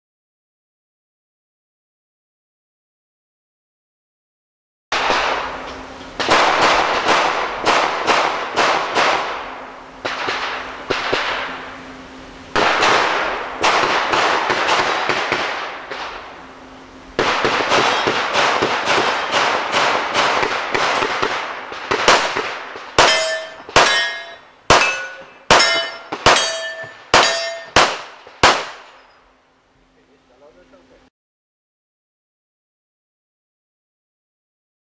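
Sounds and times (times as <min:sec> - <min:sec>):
pistol shots: 0:06.2 - 0:11.6, 0:12.6 - 0:16.2, 0:17.2 - 0:29.0
bullet clanging on steel target: 0:23.0 - 0:27.8.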